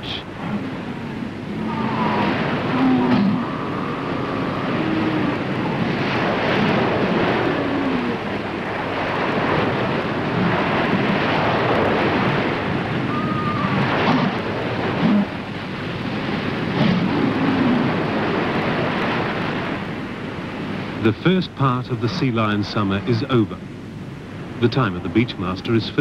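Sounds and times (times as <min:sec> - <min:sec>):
sea lion calls: 0:00.0 - 0:08.4, 0:13.0 - 0:15.4
surf breaking: 0:00.0 - 0:23.5.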